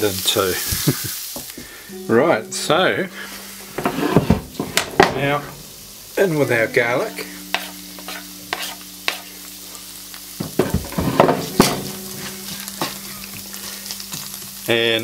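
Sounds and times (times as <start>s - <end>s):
onions and garlic sizzling: 0.0s - 15.0s
spatula scraping pan: 3.1s - 5.7s, 6.6s - 9.8s, 10.4s - 14.7s.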